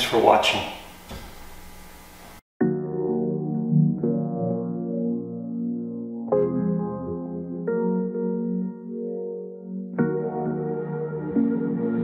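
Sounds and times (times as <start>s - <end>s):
background music with sustained chords: 2.6s - 12.0s.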